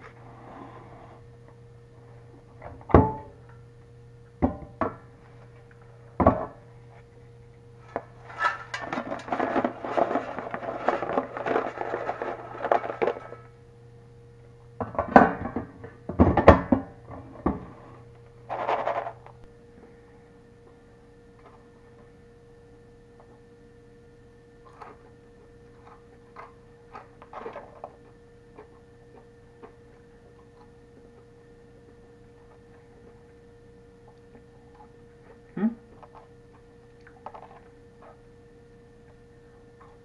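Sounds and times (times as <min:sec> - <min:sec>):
steady low hum: 0:00.0 - 0:40.0
air fryer basket knocking: 0:04.4 - 0:05.0, 0:14.8 - 0:17.6.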